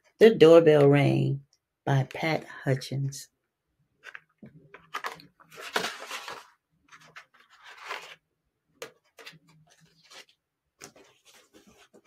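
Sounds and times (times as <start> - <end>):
book pages rustling: 4.0 - 12.0.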